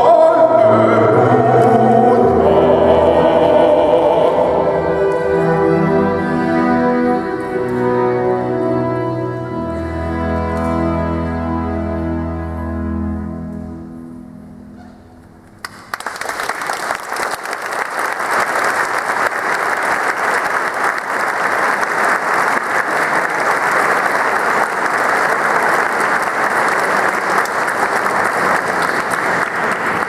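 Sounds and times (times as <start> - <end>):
music chord: 0.2 - 14.8
audience applauding: 15.6 - 30.0.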